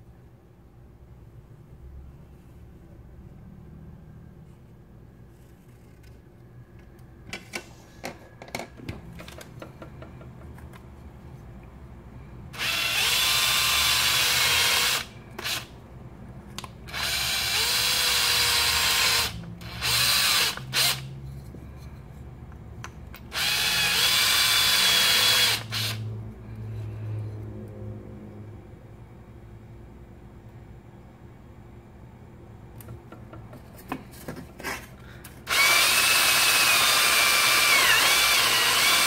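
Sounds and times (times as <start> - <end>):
power drill boring: 12.6 - 15.7, 16.9 - 21.0, 23.3 - 26.0, 35.5 - 39.0.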